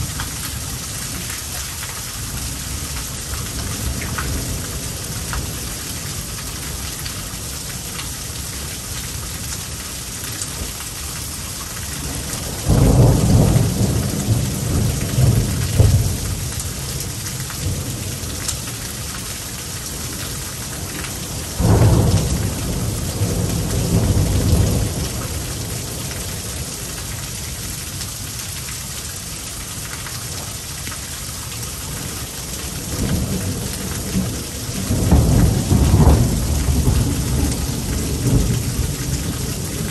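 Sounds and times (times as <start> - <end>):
heavy rain: 0.0 - 39.9
thunder rumbling: 12.1 - 16.9, 21.3 - 26.7, 32.7 - 39.9.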